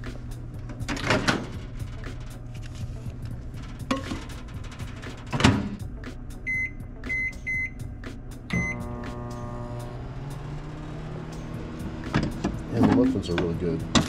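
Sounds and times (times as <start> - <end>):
keypad beeps: 6.5 - 7.8, 8.5 - 8.8
microwave humming: 8.5 - 14.0.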